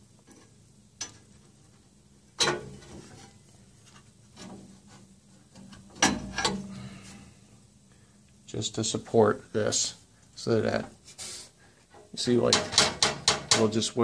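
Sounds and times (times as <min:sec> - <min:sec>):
metal clanks: 0:02.4 - 0:03.2, 0:05.6 - 0:06.8, 0:12.4 - 0:13.8.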